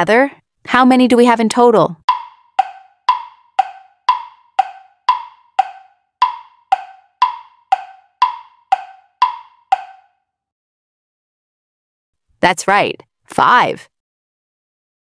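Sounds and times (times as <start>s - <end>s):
clock ticking: 2.1s - 10.1s.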